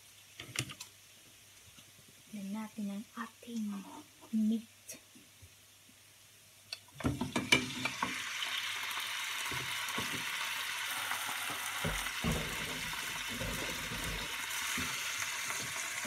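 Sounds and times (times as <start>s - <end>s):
meat sizzling in a frying pan: 0.0s - 16.0s
meat clattering into a pan: 11.3s - 16.0s
wooden spatula knocking and scraping: 11.8s - 15.8s.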